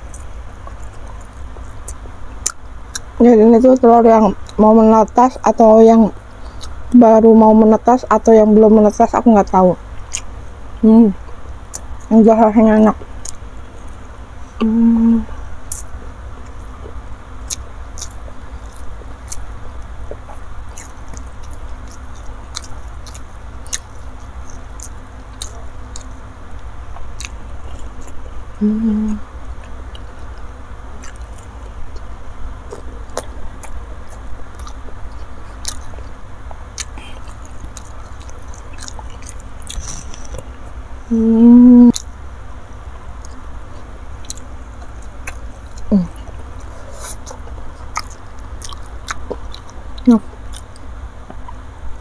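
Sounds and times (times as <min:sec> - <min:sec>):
close chewing and mouth clicks: 0:00.0 - 0:03.2, 0:06.3 - 0:06.9, 0:09.5 - 0:10.5, 0:11.2 - 0:12.1, 0:15.7 - 0:28.5, 0:29.5 - 0:40.6, 0:43.2 - 0:51.7
person humming: 0:14.6 - 0:15.4, 0:28.6 - 0:29.3, 0:41.1 - 0:42.0, 0:45.9 - 0:46.3.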